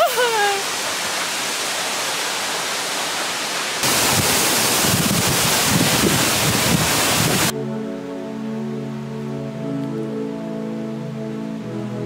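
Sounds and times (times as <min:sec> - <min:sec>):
waterfall pouring: 0:00.0 - 0:07.5
wind rumbling on microphone: 0:03.8 - 0:07.5
music: 0:07.5 - 0:12.0.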